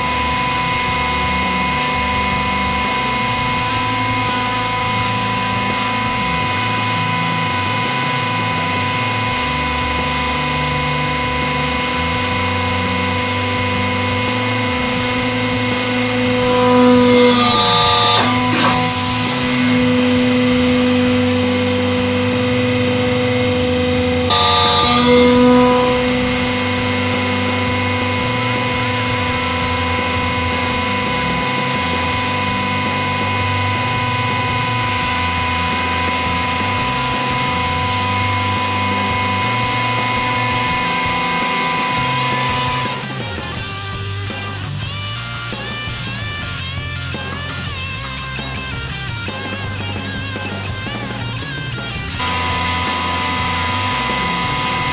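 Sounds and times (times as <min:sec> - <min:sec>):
hydraulic pump motor humming: 0:00.0 - 0:44.4, 0:50.4 - 0:54.9
hydraulic hiss: 0:15.3 - 0:22.6.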